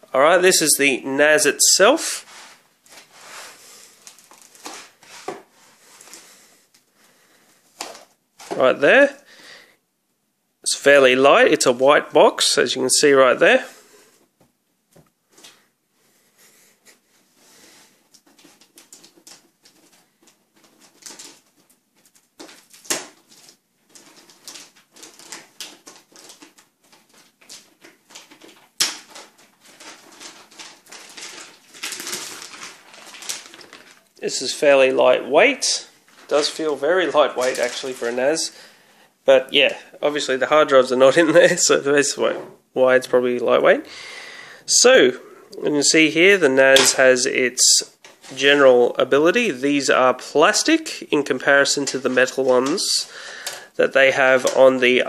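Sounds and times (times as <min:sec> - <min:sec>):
foam and plastic wrap rustling: 0:01.4 - 0:09.2, 0:17.4 - 0:42.3, 0:45.8 - 0:55.0.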